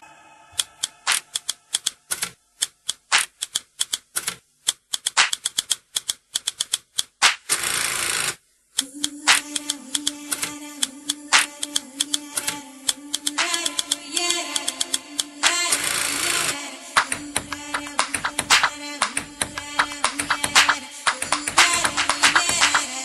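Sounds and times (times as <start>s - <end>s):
rapid sharp clicks: 0.6s - 23.0s
dance music over loudspeakers: 17.0s - 23.0s.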